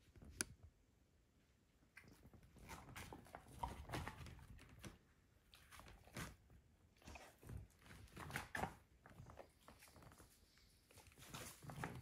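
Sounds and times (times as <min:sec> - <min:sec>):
dog gnawing a bone: 0:02.0 - 0:10.3.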